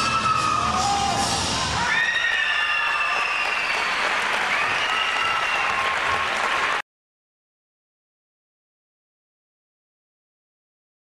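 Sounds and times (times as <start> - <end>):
high-pitched cheering voices: 0.0 - 6.8
audience applauding: 1.9 - 6.8.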